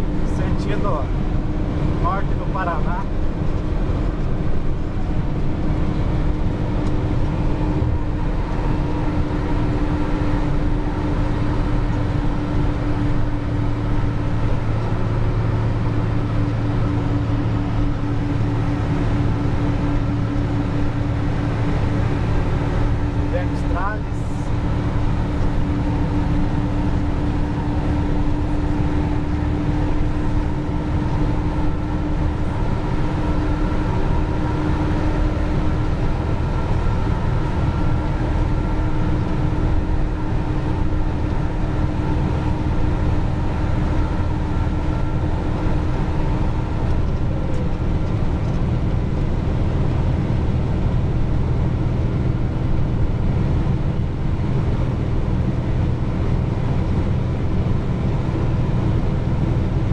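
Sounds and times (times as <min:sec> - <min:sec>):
truck engine and road rumble: 0:00.0 - 0:59.9.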